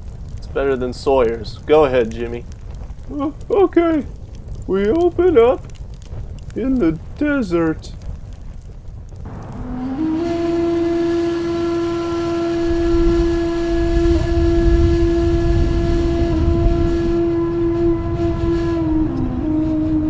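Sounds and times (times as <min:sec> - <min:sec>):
wind rumbling on microphone: 0:00.0 - 0:20.0
long steady held note: 0:09.3 - 0:20.0.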